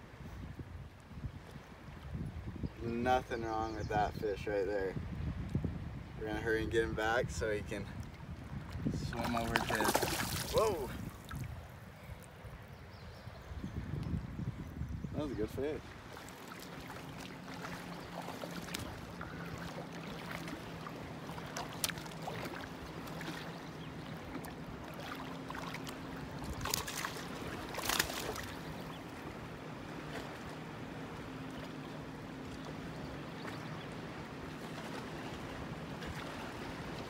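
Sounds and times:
fish splashing in water: 0:09.2 - 0:11.5, 0:24.4 - 0:28.9.

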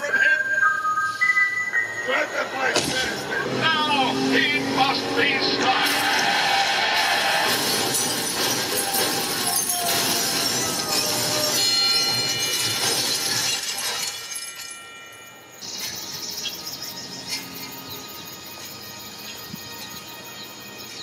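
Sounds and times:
action film music over speakers: 0:01.1 - 0:13.7, 0:15.6 - 0:21.0
crashing and shattering effects: 0:05.8 - 0:14.7
held high tones: 0:08.7 - 0:18.2.

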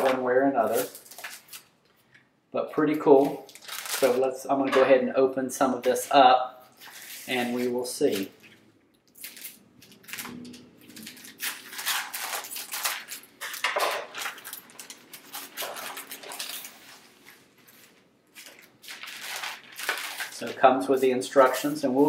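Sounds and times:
plastic crinkling and rustling: 0:00.0 - 0:02.2, 0:03.1 - 0:04.4, 0:05.9 - 0:22.0.

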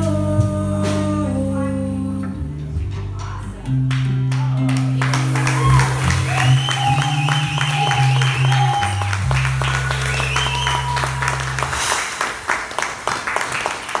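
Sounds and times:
music with held bass notes: 0:00.0 - 0:11.9
audience applause: 0:04.3 - 0:14.0.

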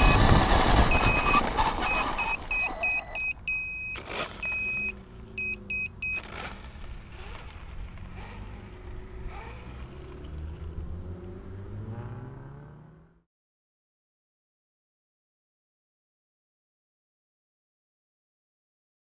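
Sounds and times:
high electronic beeps: 0:00.0 - 0:06.3
low engine hum: 0:00.0 - 0:13.2.

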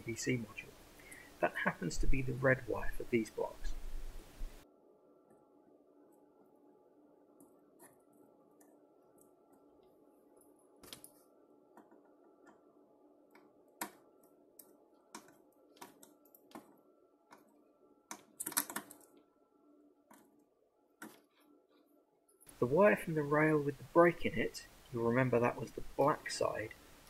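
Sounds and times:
faint steady hum: 0:00.0 - 0:27.0
wires clicking and rattling: 0:07.4 - 0:12.7, 0:13.3 - 0:19.3.

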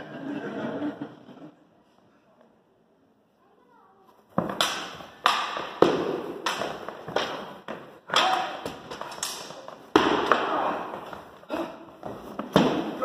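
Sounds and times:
weapons striking wooden shield: 0:04.4 - 0:10.8, 0:12.4 - 0:13.0.

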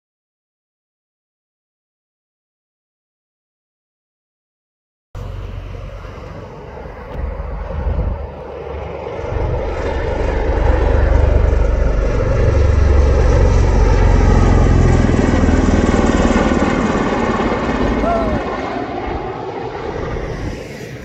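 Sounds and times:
aircraft engine noise: 0:05.2 - 0:21.0
aircraft rotors beating: 0:05.2 - 0:21.0.

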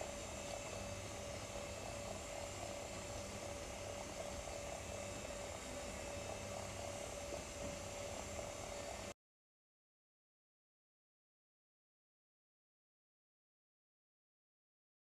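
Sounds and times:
droning hum: 0:00.0 - 0:09.2.

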